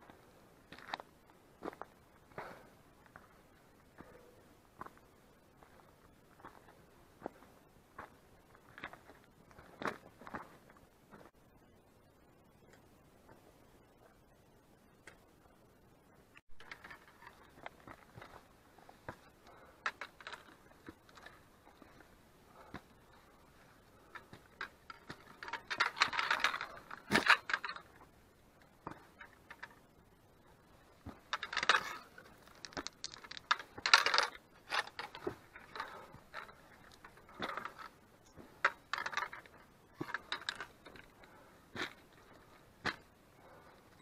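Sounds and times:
poles and boots clicking on rock: 0:00.7 - 0:11.3, 0:16.4 - 0:44.0
loose stones clattering: 0:16.6 - 0:22.9, 0:24.0 - 0:28.1, 0:30.6 - 0:44.0.

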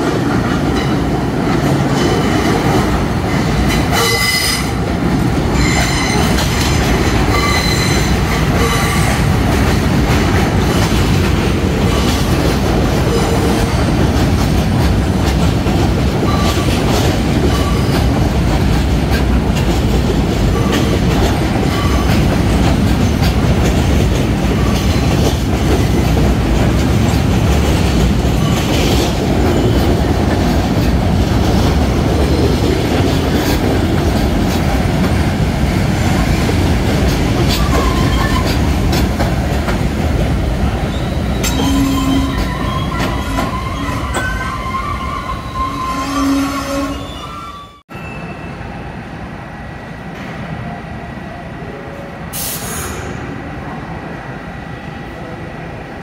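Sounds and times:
rail joints clickety-clack: 0:00.0 - 0:47.9
subway train wheels rumbling: 0:00.0 - 0:56.0
wheel squeals: 0:40.9 - 0:48.4.

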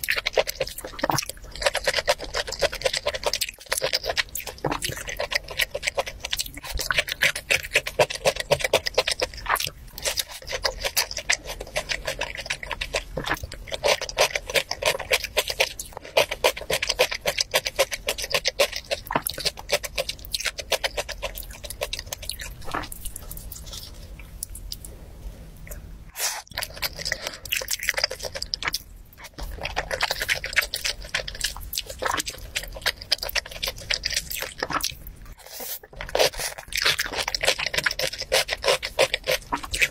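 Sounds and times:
chewing and crunching food: 0:00.0 - 0:39.9.

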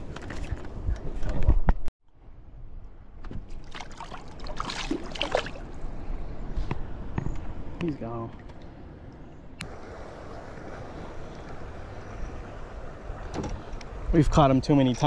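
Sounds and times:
water splashing against boat: 0:03.3 - 0:05.9.

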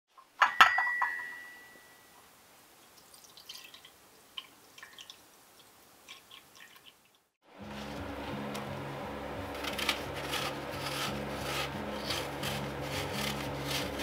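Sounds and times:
ringing clink of kitchenware: 0:00.4 - 0:02.2.

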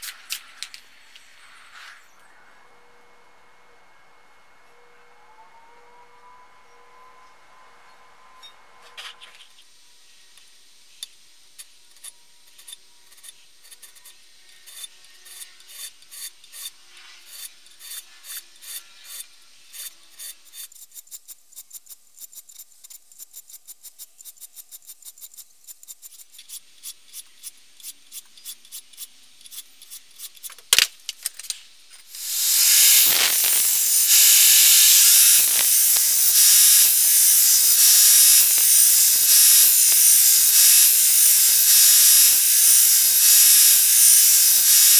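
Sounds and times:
file rasping on steel: 0:12.6 - 0:20.8
belt grinder grinding metal: 0:32.1 - 0:44.9.

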